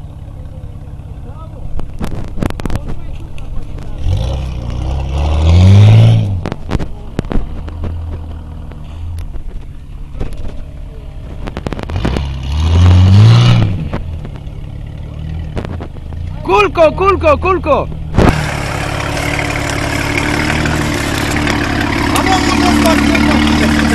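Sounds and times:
truck engine revving: 0.0s - 23.9s
knocks and clatter: 6.3s - 12.5s, 13.5s - 16.3s.

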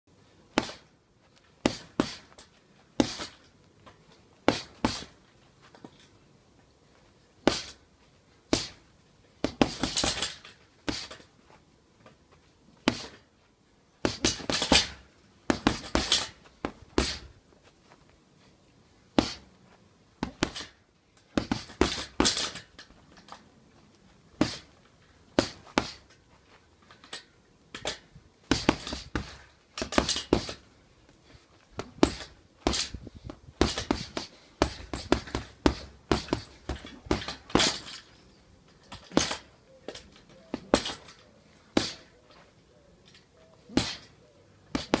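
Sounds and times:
gloves punching heavy bag: 1.6s - 2.4s, 3.0s - 3.4s, 4.5s - 5.2s, 7.4s - 7.8s, 8.5s - 8.8s, 9.4s - 11.2s, 12.8s - 13.2s, 14.0s - 17.4s, 19.2s - 19.5s, 20.2s - 22.6s, 24.4s - 26.1s, 28.5s - 30.6s, 31.8s - 37.9s, 38.9s - 39.5s, 41.7s - 42.1s, 43.7s - 44.1s, 44.7s - 45.0s.

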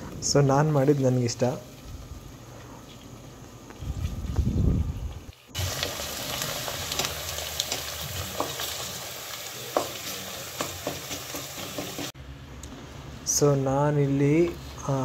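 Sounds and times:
onions sizzling in oil: 0.5s - 2.4s, 5.4s - 12.2s.

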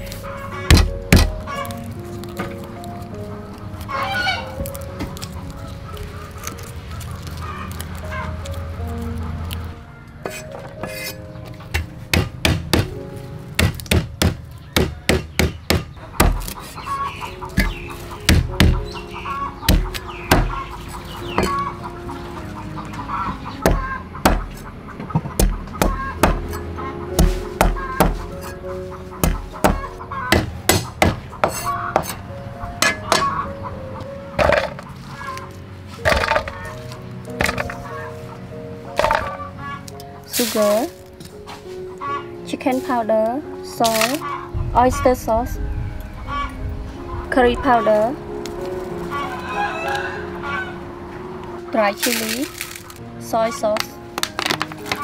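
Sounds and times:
cleaver chopping on wooden block: 0.7s - 1.4s, 11.7s - 13.0s, 13.6s - 16.6s, 17.6s - 18.8s, 19.7s - 20.6s, 23.6s - 24.6s, 25.2s - 26.6s, 27.2s - 28.6s, 29.2s - 32.2s.

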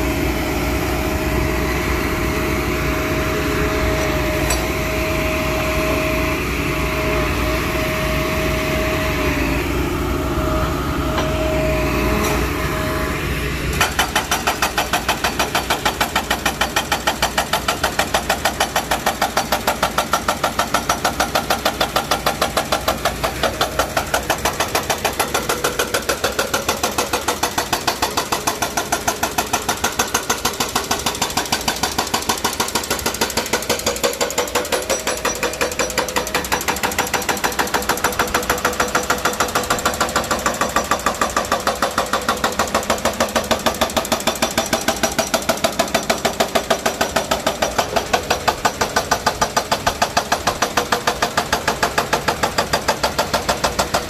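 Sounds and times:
excavator engine whining: 0.0s - 54.0s
hydraulic breaker hammering concrete: 11.0s - 54.0s.

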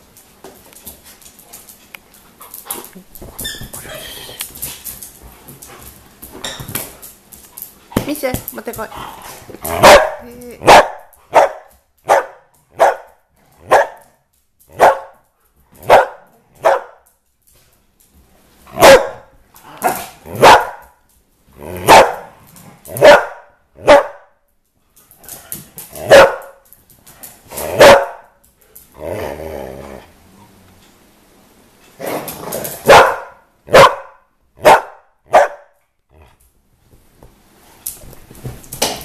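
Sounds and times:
dog barking: 9.7s - 13.1s, 13.7s - 14.0s, 14.8s - 15.2s, 15.8s - 17.0s, 18.8s - 20.8s, 21.8s - 22.3s, 23.0s - 24.3s, 26.1s - 26.6s, 27.8s - 28.3s, 32.9s - 35.8s
dog growling: 29.0s - 30.8s, 36.1s - 36.4s.

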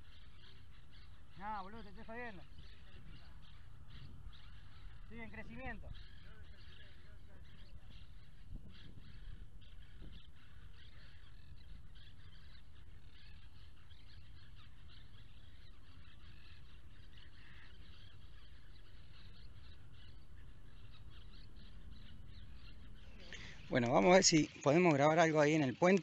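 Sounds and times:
small birds chirping: 0.0s - 26.0s.

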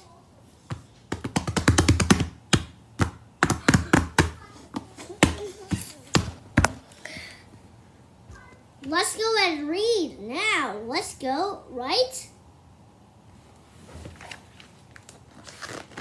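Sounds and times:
hands tapping and knocking phone: 0.7s - 6.8s.

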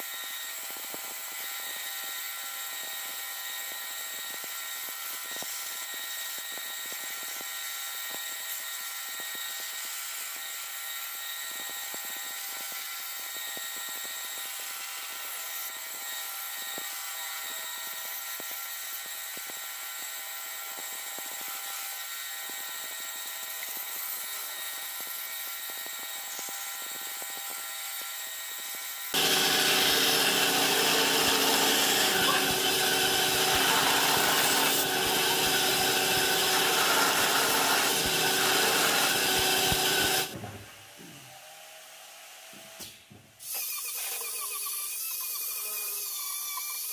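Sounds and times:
saw blade cutting wood: 9.0s - 40.8s, 42.5s - 46.9s
band saw whining: 28.8s - 41.6s.

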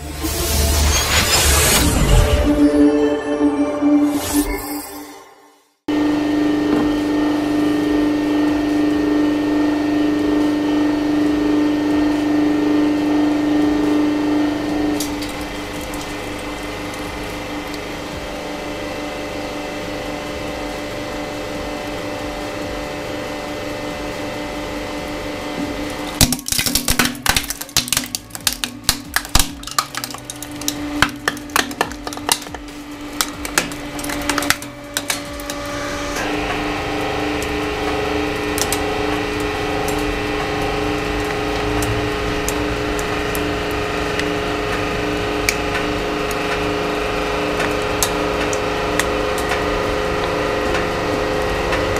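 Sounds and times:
hydraulic pump humming: 5.9s - 51.9s
plastic case cracking: 26.2s - 35.5s.

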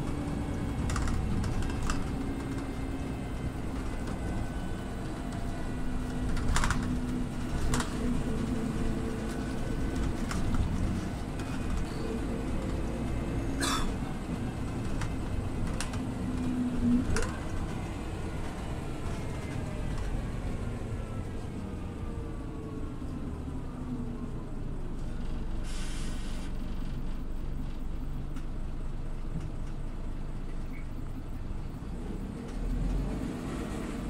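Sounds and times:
bus drivetrain whining: 0.0s - 34.0s
short hiss: 25.6s - 26.6s.

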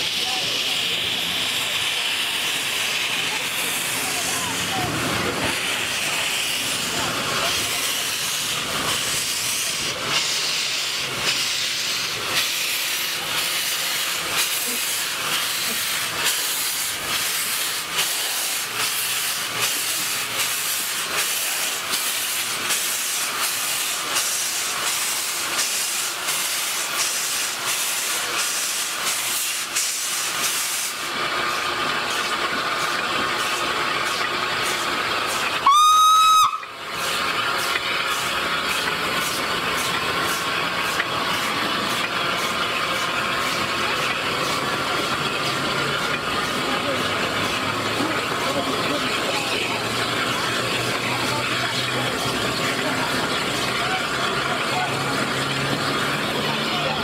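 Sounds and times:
steam locomotive hissing: 0.0s - 57.0s
locomotive whistle blast: 35.6s - 36.7s.

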